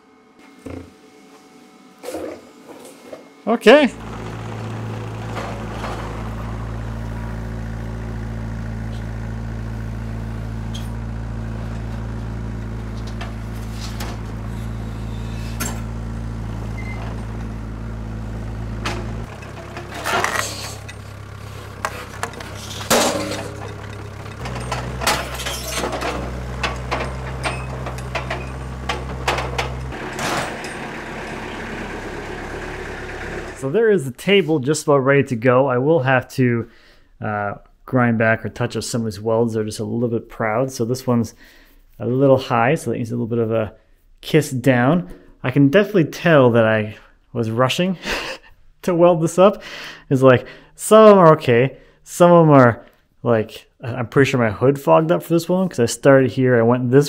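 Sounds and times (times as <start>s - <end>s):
mini loader engine running: 3.7s - 33.8s
metal clinks and knocks: 18.8s - 31.4s.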